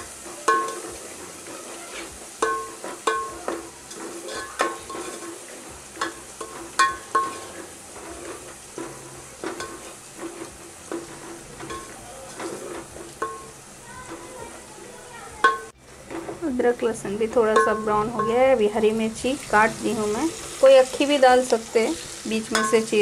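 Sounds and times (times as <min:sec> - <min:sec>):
onions sizzling in hot oil: 0:00.0 - 0:23.0
spoon scraping and knocking pot: 0:00.4 - 0:05.4, 0:06.0 - 0:14.2, 0:17.4 - 0:18.6, 0:22.4 - 0:23.0.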